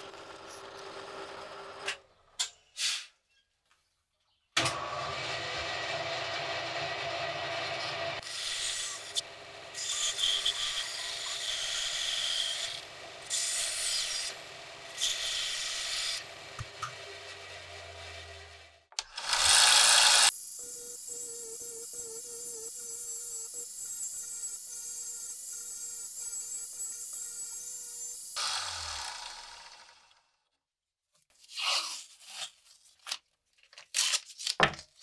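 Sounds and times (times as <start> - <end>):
band saw motor hum: 4.6 - 30.3
saw blade cutting wood: 5.2 - 30.2
drill press running: 16.2 - 20.3.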